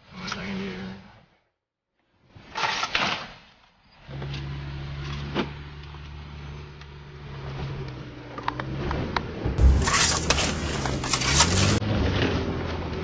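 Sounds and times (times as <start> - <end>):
low engine and drivetrain drone: 4.1 - 13.0
loud rustling burst: 9.6 - 11.8.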